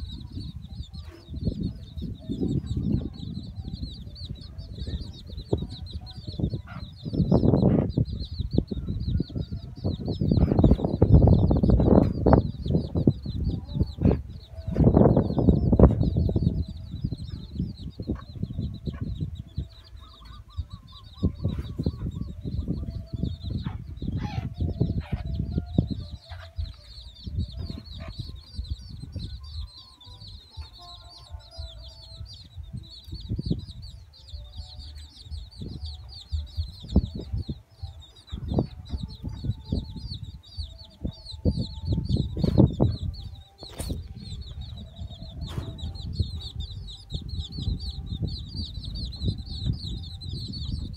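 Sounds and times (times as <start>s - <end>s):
chicks peeping: 0.0s - 50.9s
hen clucking: 0.0s - 50.9s
low bumps and rumbles: 32.5s - 50.9s.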